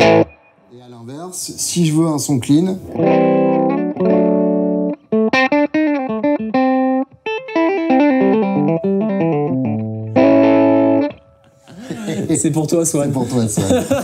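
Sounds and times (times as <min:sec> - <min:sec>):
clean electric guitar: 0:00.0 - 0:00.7, 0:02.8 - 0:11.7.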